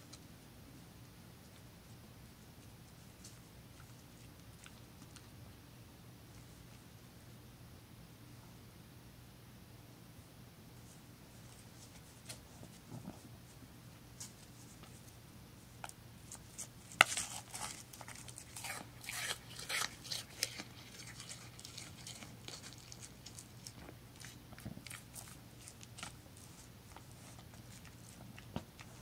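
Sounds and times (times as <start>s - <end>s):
deer chewing dry hay: 17.0s - 29.0s.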